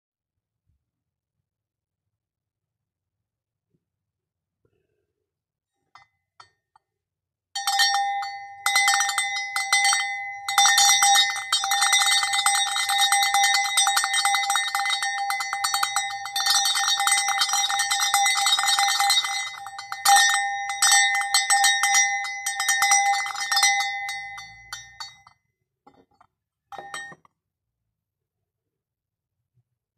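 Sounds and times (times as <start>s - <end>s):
hand bell clanging: 7.6s - 25.3s, 26.7s - 27.3s.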